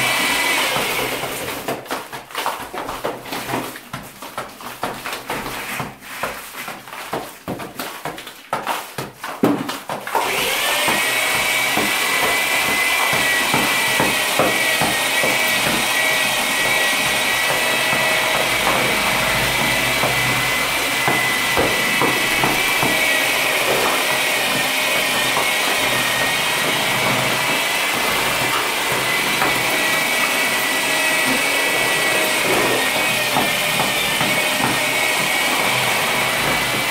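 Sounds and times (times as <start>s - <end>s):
electric drill drilling into wall: 0.0s - 1.5s, 10.2s - 36.9s.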